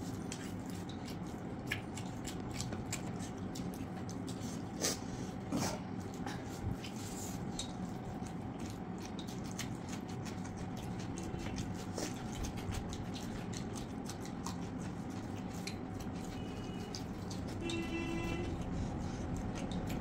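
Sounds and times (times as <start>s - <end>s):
fingers mixing food on steel plates: 0.0s - 20.0s
mouths chewing: 0.0s - 20.0s
low hum: 15.9s - 20.0s.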